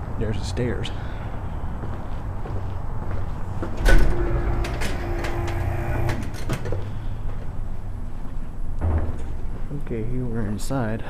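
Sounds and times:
steady door hum: 3.3s - 9.7s.

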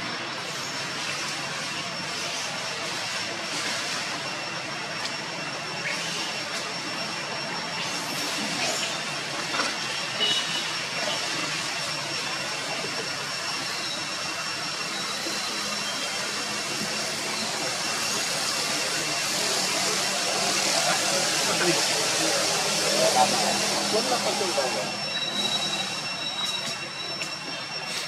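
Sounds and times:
thin high steady tones: 0.1s - 28.0s.

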